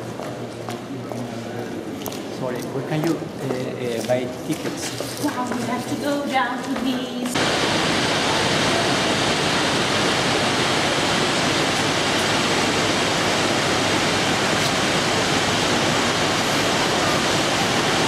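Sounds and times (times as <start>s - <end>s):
fast-flowing water rushing: 7.4s - 18.0s.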